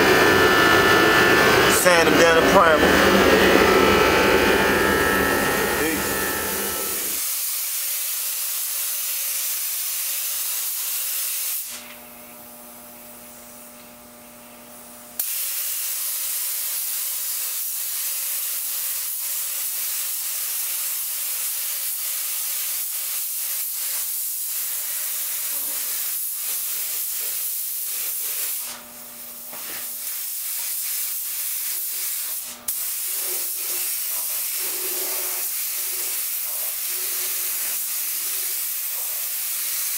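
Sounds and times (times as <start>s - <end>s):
paint spray gun hissing: 23.1s - 28.8s, 29.5s - 39.9s.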